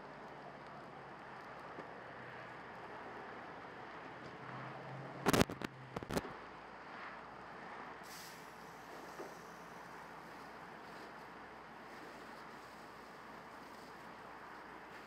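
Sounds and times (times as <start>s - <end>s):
sharp pops in flames: 5.2s - 6.2s
fire burning with rushing noise: 5.2s - 15.0s.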